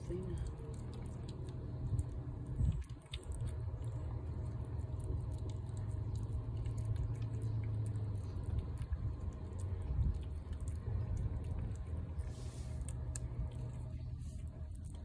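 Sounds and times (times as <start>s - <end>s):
cat chewing and licking: 0.0s - 15.0s
steady low rumble: 0.0s - 15.0s.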